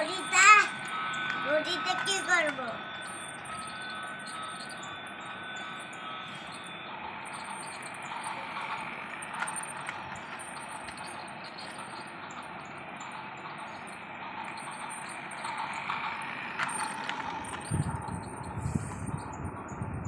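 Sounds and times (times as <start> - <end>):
thin electronic tones: 0.0 - 19.3
toy train whirring and rattling: 0.0 - 20.0.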